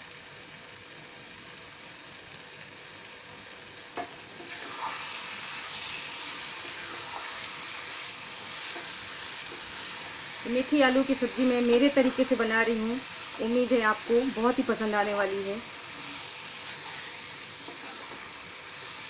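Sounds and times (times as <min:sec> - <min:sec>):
vegetables sizzling in a pan: 0:00.0 - 0:19.0
spatula scraping pan: 0:04.4 - 0:10.4, 0:15.6 - 0:19.0.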